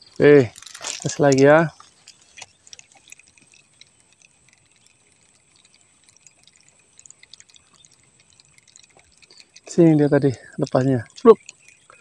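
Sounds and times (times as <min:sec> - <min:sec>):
fishing reel ticking and clicking: 0:00.0 - 0:12.0.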